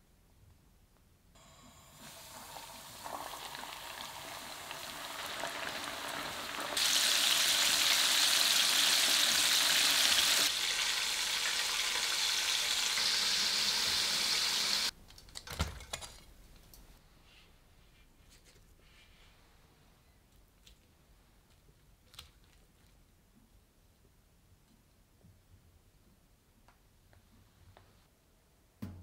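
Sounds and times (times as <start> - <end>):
chicken deep-frying in oil: 1.4 - 15.0.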